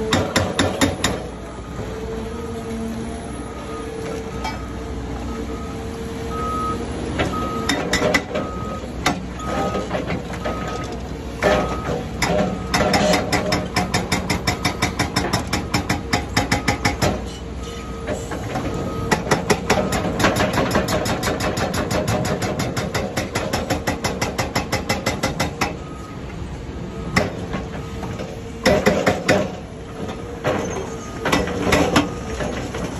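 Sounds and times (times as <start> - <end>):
hydraulic breaker hammering concrete: 0.0 - 1.3, 11.4 - 17.3, 19.1 - 25.8, 28.6 - 29.6.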